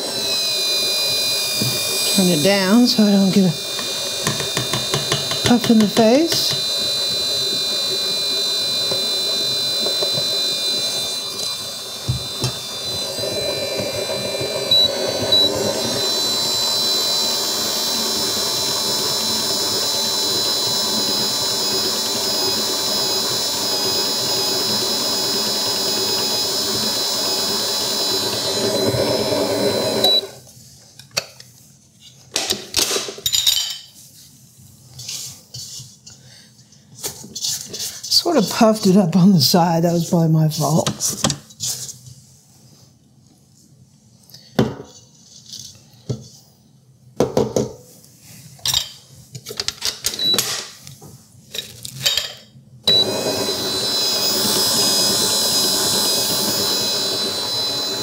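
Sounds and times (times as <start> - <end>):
stand mixer motor whining: 0.0 - 30.4, 52.9 - 58.0.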